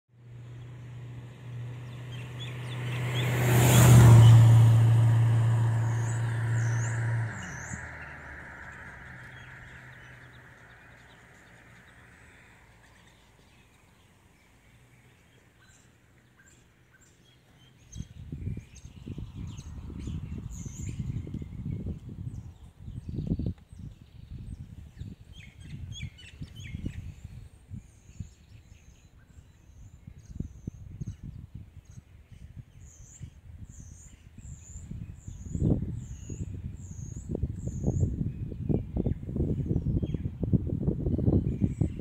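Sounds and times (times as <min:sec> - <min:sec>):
vehicle passing by: 0:00.2 - 0:15.0
birds chirping: 0:00.2 - 0:40.4.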